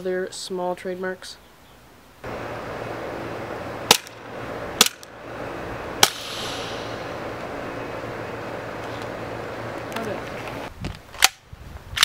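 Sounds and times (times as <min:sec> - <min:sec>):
outdoor background noise: 0:00.0 - 0:12.0
airsoft pistol shots: 0:06.0 - 0:06.9.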